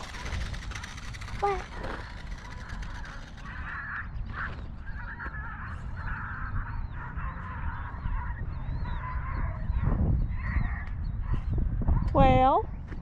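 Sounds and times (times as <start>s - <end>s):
steady low rumble: 0.0s - 13.0s
geese honking: 2.0s - 8.4s.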